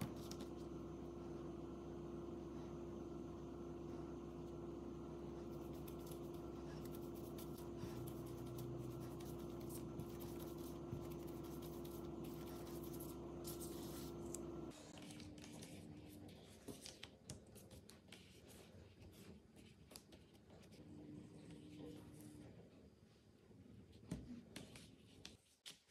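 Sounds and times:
low hum: 0:00.0 - 0:15.5
hands rolling dough on countertop: 0:05.1 - 0:14.7.

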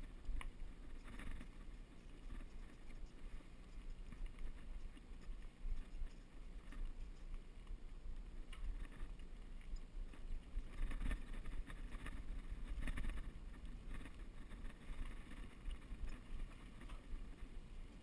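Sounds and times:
wind rumble on microphone: 0:08.1 - 0:18.0.

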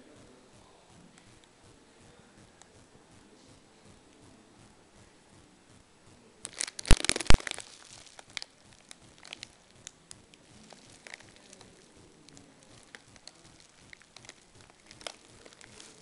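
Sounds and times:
plastic wrapping crinkling: 0:06.4 - 0:16.0.

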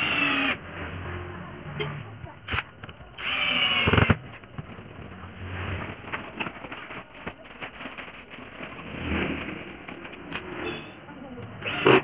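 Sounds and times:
cordless drill driving screw: 0:03.2 - 0:04.2, 0:11.6 - 0:12.0.

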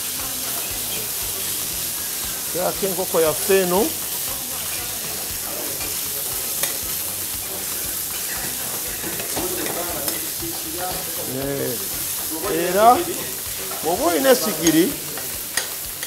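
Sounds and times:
chicken sizzling on a griddle: 0:00.0 - 0:16.0
metal spatula scraping: 0:03.1 - 0:15.8.

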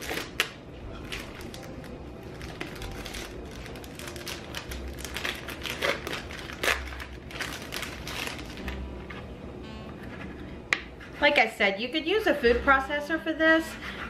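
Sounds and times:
plastic pouch crinkling: 0:00.0 - 0:08.8
plastic rustling: 0:00.0 - 0:08.8.

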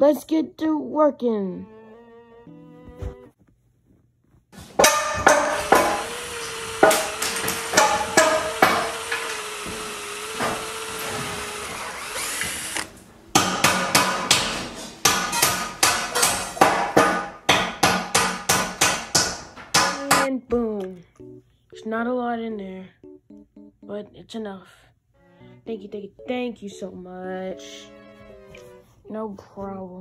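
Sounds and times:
hammer blows: 0:04.6 - 0:11.4
clattering knocks: 0:04.7 - 0:11.6
power tool whine: 0:05.6 - 0:13.0.

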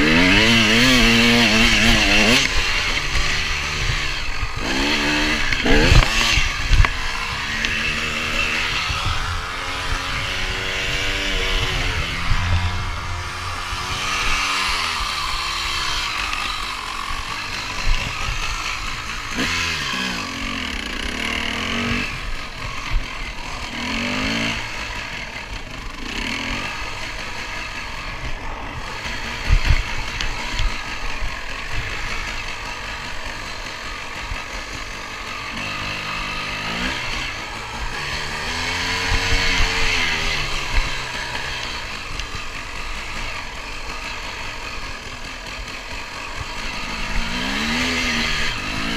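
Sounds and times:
motorcycle engine revving: 0:00.0 - 0:48.9
wind noise: 0:01.7 - 0:16.5.

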